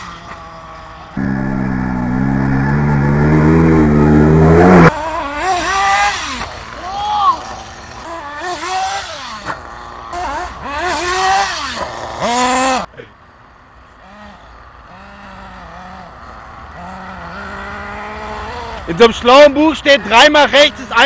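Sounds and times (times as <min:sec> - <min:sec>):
faint low engine note: 0:01.2 - 0:04.9
rc car motor revving: 0:01.2 - 0:06.6, 0:07.4 - 0:12.9.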